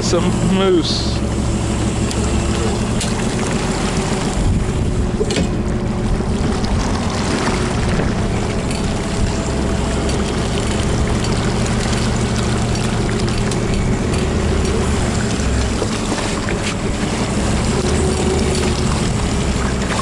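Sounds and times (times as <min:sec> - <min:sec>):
boat engine running: 0:00.0 - 0:20.0
water noise: 0:00.0 - 0:20.0
wind on microphone: 0:04.1 - 0:11.6.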